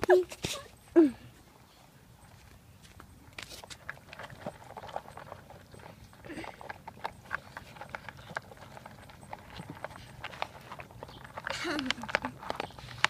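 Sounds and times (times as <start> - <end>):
dog crunching dry kibble: 2.9 - 13.0.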